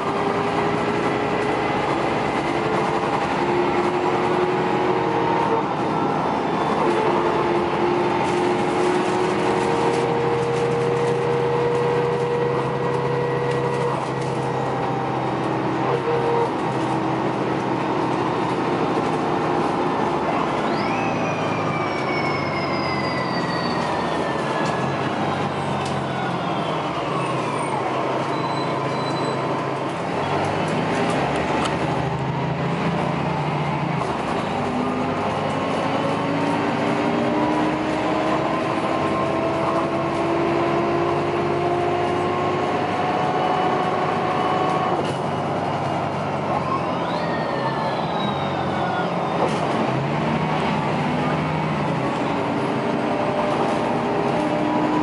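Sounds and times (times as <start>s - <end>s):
bus engine running: 0.0s - 55.0s.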